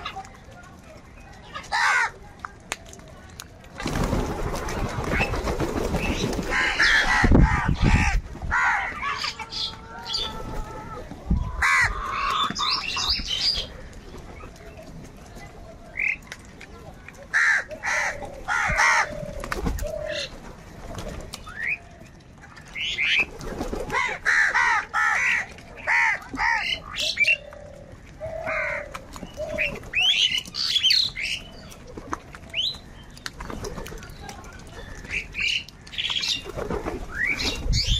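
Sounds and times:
crows cawing: 6.5s - 11.0s, 11.6s - 12.8s, 17.3s - 19.2s, 23.9s - 26.9s, 28.2s - 28.9s.

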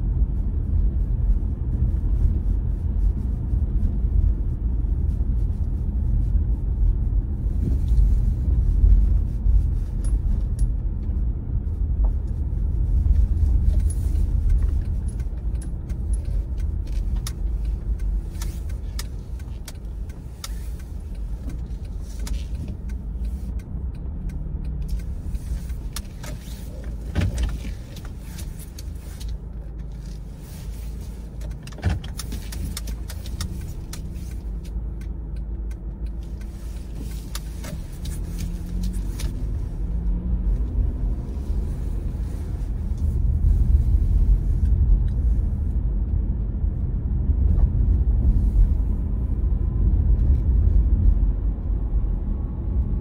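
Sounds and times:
car road and engine rumble: 0.0s - 53.0s
light clicks and rattles: 11.9s - 41.0s.

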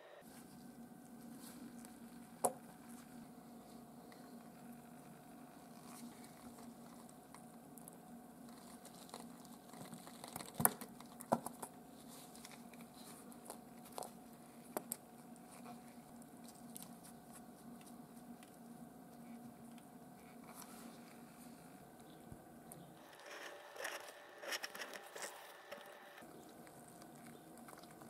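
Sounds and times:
faint steady hum: 0.0s - 28.0s
plastic film crinkling: 23.0s - 28.0s.

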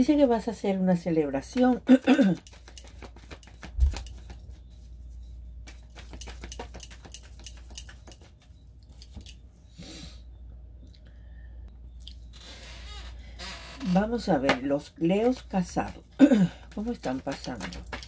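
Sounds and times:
cards shuffling: 2.4s - 4.6s, 5.6s - 8.4s, 16.7s - 18.0s.

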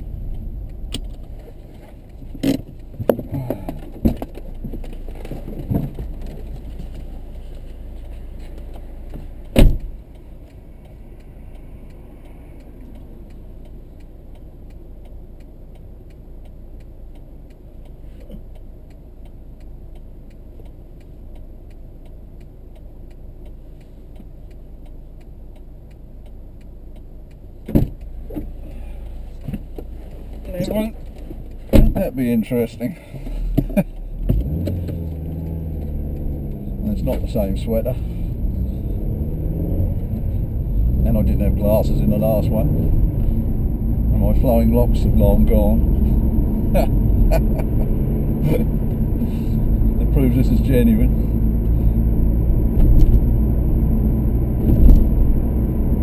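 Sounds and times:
stationary car humming: 0.0s - 56.0s
car door thumping shut: 9.5s - 9.9s, 31.7s - 32.0s.

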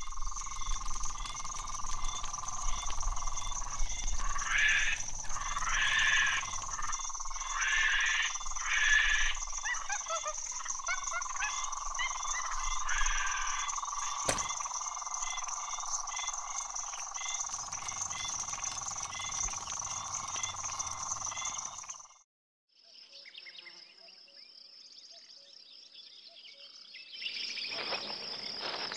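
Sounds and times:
frogs calling: 0.0s - 22.2s
small falling chirps: 14.0s - 14.8s.

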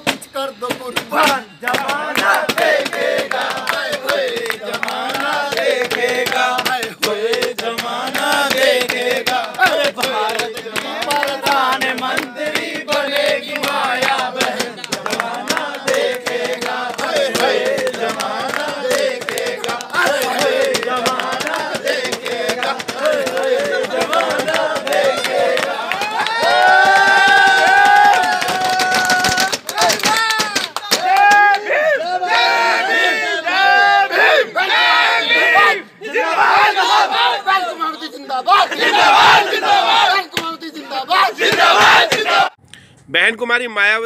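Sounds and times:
hand claps: 0.0s - 31.6s
men singing chant-like: 1.0s - 27.0s, 31.6s - 42.5s.

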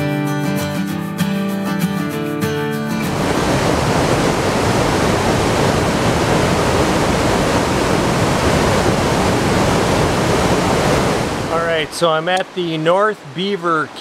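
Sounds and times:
waterfall pouring over rocks: 3.1s - 14.0s.

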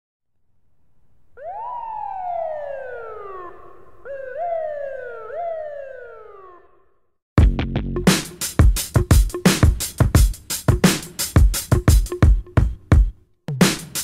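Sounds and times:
emergency vehicle siren wailing: 1.4s - 6.9s.

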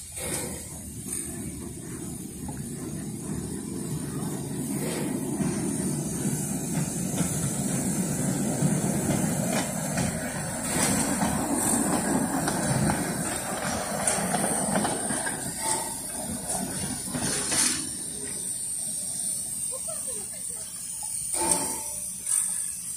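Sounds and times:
rail trolley engine: 0.0s - 22.9s
wheels clicking over rail joints: 0.0s - 22.9s.

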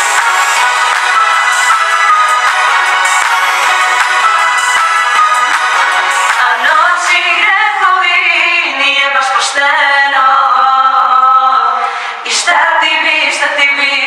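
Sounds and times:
women singing in harmony: 6.2s - 14.0s.

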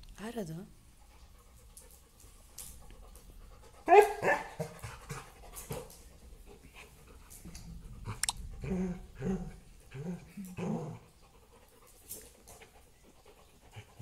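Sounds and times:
dog panting: 0.9s - 14.0s
dog yipping: 3.9s - 4.6s.

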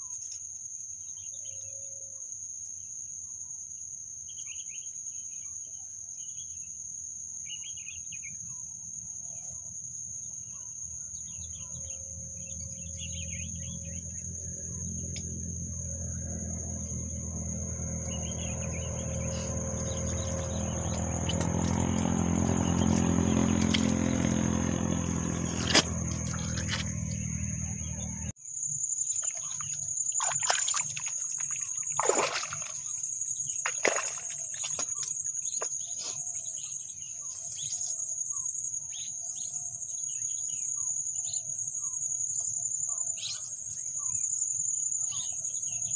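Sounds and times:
insects buzzing: 0.0s - 45.9s
distant motor drone: 11.2s - 28.4s
bird chirps: 18.0s - 28.4s
footsteps in wet mud: 19.2s - 27.4s, 29.1s - 33.0s, 33.6s - 35.8s.

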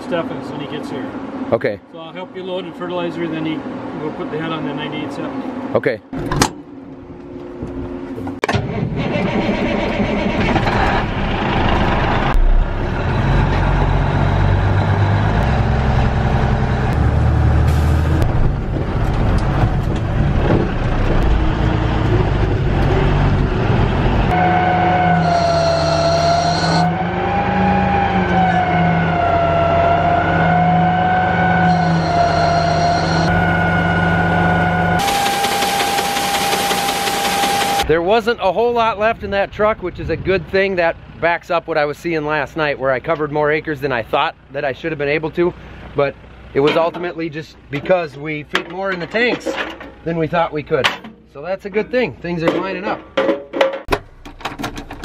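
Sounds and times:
farm machinery engines rumbling: 0.0s - 55.0s
high wavering whine: 31.6s - 37.8s.

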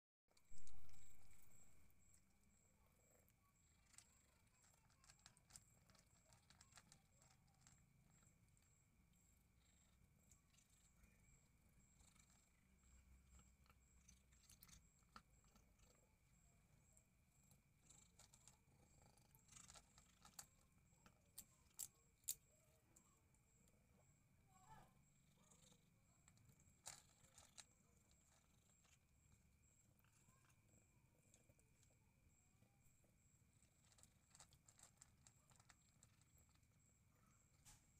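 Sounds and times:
cat chewing dry food: 3.6s - 8.7s, 13.3s - 15.7s, 17.6s - 22.4s, 26.2s - 29.1s, 33.6s - 36.8s.

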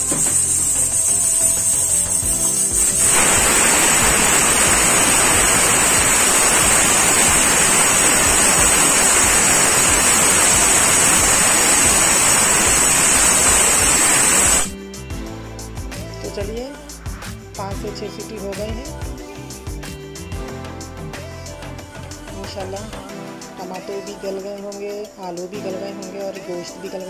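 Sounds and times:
pressure cooker whistling: 0.0s - 14.8s.

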